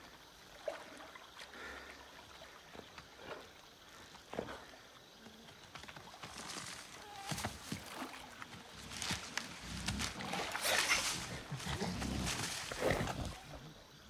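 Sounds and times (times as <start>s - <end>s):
animal noises: 3.2s - 14.0s
rustling through undergrowth: 5.8s - 13.5s.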